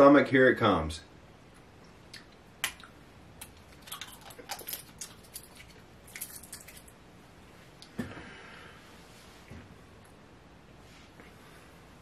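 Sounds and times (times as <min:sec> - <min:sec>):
wet mouth clicks and lip smacks: 0:02.1 - 0:06.9.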